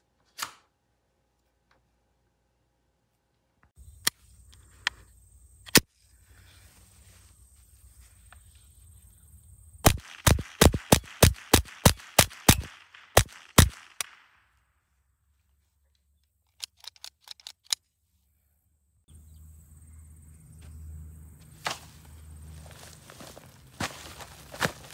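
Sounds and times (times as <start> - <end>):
rifle shots: 9.8 - 14.4.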